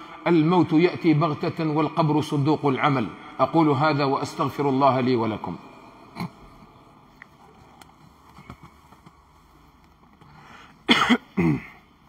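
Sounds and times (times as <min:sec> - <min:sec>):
person coughing: 0:06.1 - 0:06.6, 0:10.8 - 0:11.9
faint clicks and rustles: 0:07.1 - 0:10.4.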